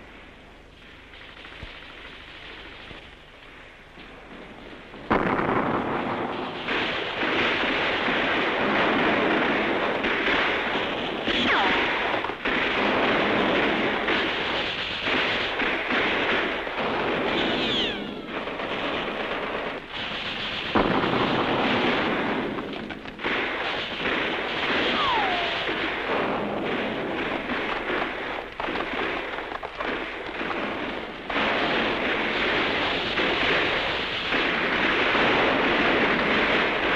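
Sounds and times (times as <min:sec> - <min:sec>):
rifle and machine-gun fire: 0:00.0 - 0:36.9
explosions: 0:00.8 - 0:36.9
falling shell whistles: 0:17.3 - 0:18.4, 0:24.9 - 0:25.8.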